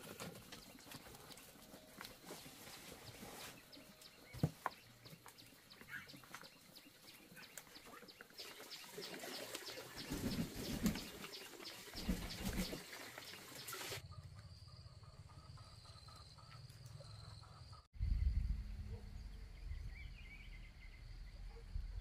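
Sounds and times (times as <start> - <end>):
rustling: 0.0 - 5.4.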